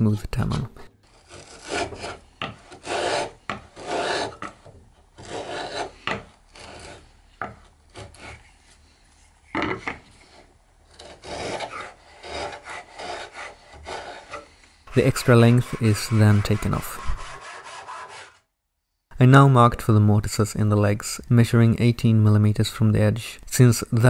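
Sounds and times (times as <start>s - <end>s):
router plane scraping wood: 1.0s - 8.9s, 10.1s - 18.5s.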